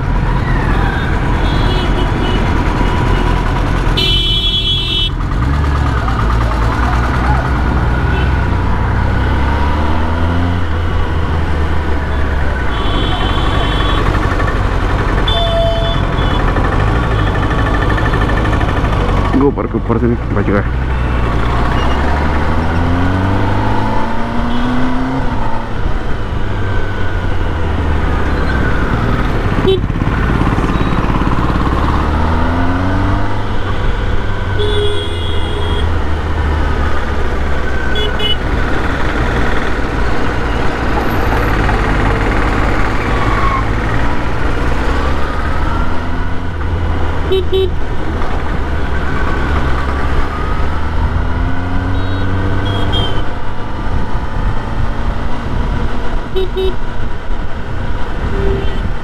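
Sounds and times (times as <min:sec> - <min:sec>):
motorcycle engine accelerating: 0:00.0 - 0:04.2, 0:05.0 - 0:59.0
road and wind noise: 0:00.0 - 0:59.0
short horn beeps: 0:51.9 - 0:53.2, 0:58.3 - 0:58.9.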